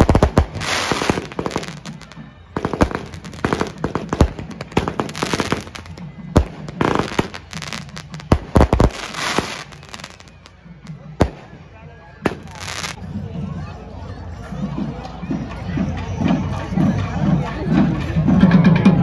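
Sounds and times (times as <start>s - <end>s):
firecrackers banging and crackling: 0.0s - 13.0s.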